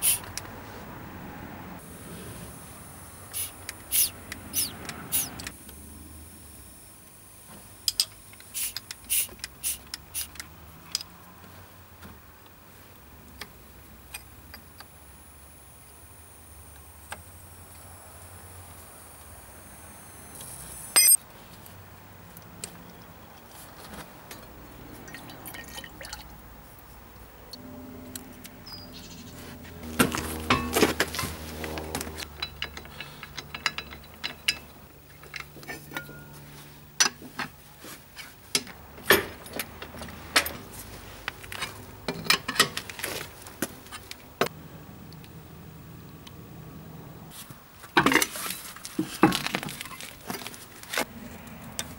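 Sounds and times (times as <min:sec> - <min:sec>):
metallic clicks of wrenches: 0:32.2 - 0:36.2.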